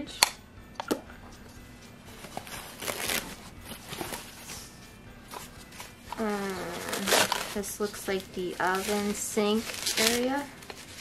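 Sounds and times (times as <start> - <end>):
packaging rustling and crinkling: 2.2 - 4.5, 5.3 - 11.0.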